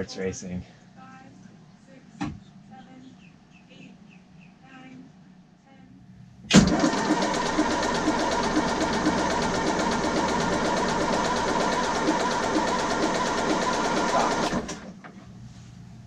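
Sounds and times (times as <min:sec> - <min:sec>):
diesel engine starting: 0:06.5 - 0:15.0.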